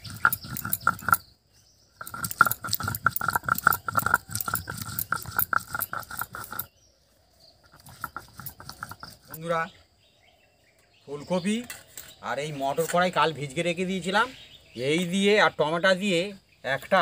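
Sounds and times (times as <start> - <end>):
stone grinding gritty scraping: 0.0 - 1.3, 1.9 - 6.8, 7.6 - 9.7.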